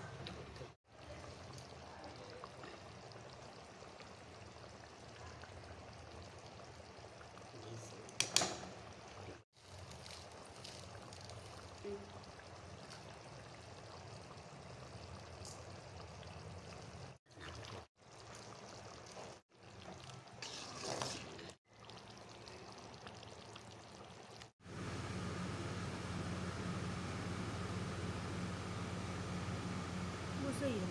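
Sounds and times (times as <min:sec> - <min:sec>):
gravy bubbling: 0:00.1 - 0:24.6.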